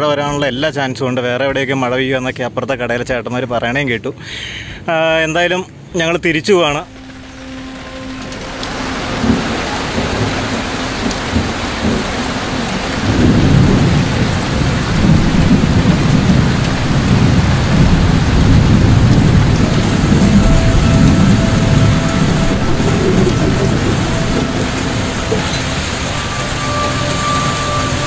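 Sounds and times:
heavy rain pouring on road: 0:06.8 - 0:28.0
low rumble of thunder: 0:08.5 - 0:28.0.

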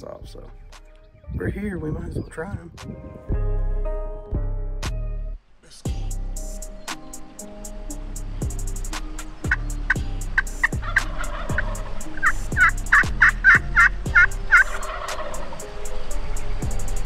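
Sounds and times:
background music with kick drum: 0:00.0 - 0:05.3, 0:05.9 - 0:17.0
wild turkey yelping: 0:09.2 - 0:16.6.

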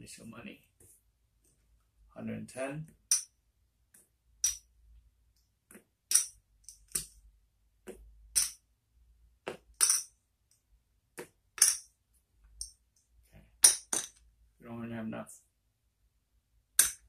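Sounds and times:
clay poker chips clicking: 0:06.1 - 0:07.2, 0:16.8 - 0:17.0.

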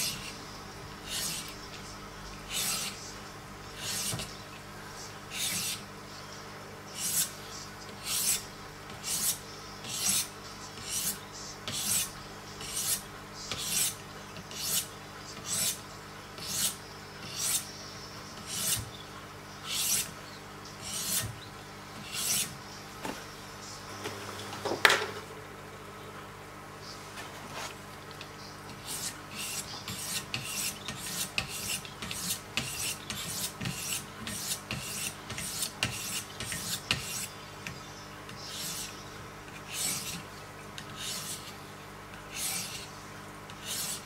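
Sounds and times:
sharpening stone rasping on blade: 0:01.1 - 0:01.5, 0:02.5 - 0:03.0, 0:03.8 - 0:04.3, 0:05.3 - 0:05.8, 0:07.0 - 0:07.4, 0:08.0 - 0:08.4, 0:09.0 - 0:15.8, 0:16.4 - 0:17.7, 0:18.4 - 0:18.9, 0:19.6 - 0:20.1, 0:20.8 - 0:21.3, 0:22.0 - 0:22.6, 0:28.7 - 0:37.3, 0:38.4 - 0:39.0, 0:39.7 - 0:40.2, 0:40.8 - 0:41.5, 0:42.3 - 0:42.9, 0:43.5 - 0:44.0.

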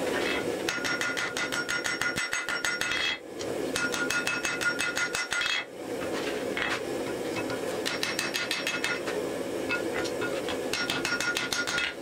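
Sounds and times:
hammer striking on anvil: 0:00.7 - 0:03.2, 0:03.8 - 0:05.6, 0:07.8 - 0:09.0, 0:10.7 - 0:12.0.

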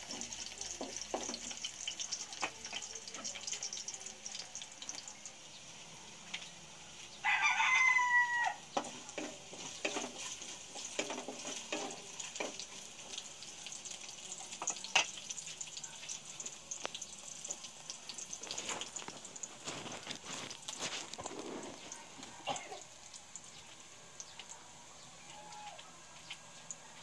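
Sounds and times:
wooden spatula knocking pan: 0:00.0 - 0:01.6, 0:08.8 - 0:12.7
garlic sizzling in a wok: 0:00.0 - 0:27.0.

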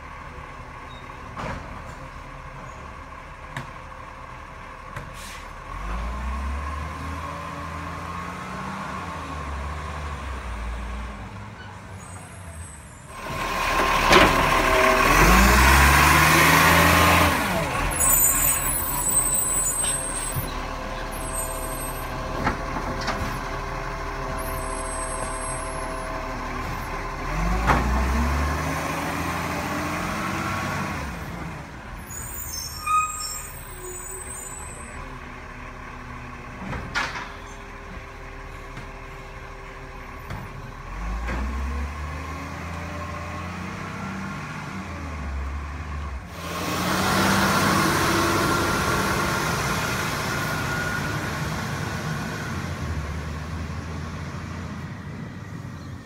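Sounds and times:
air brakes hissing: 0:05.0 - 0:05.6
truck diesel engine revving: 0:05.5 - 0:11.4, 0:13.1 - 0:32.4, 0:37.6 - 0:55.8.

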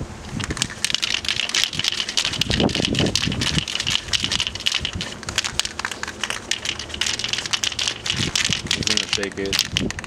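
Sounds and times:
ball rattling in spray can: 0:00.3 - 0:10.0.

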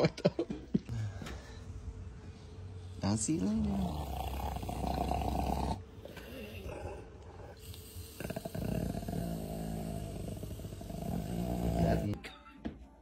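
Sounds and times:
dog growling: 0:03.6 - 0:12.2.

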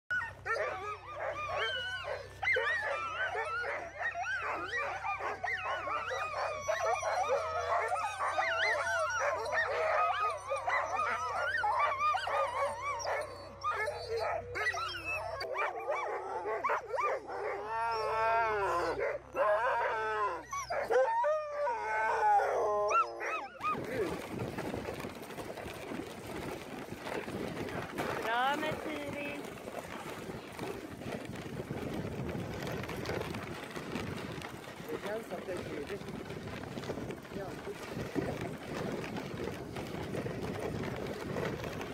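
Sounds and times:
sled dogs howling and yelping: 0:00.1 - 0:41.9.

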